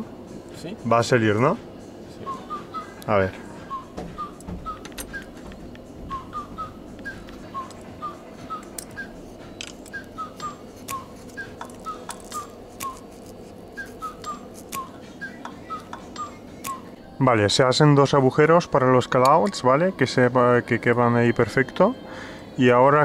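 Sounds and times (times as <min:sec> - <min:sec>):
whistled tune: 0:02.2 - 0:05.4, 0:06.1 - 0:09.2, 0:09.9 - 0:13.2, 0:13.8 - 0:17.0.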